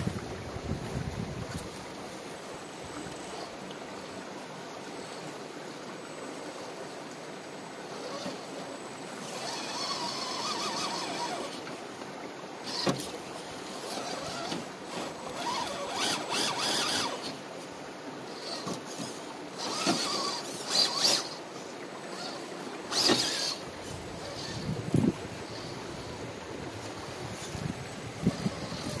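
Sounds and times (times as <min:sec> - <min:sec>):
electric motor whining: 0:09.2 - 0:11.8, 0:12.6 - 0:17.4, 0:18.3 - 0:21.4, 0:22.1 - 0:29.0.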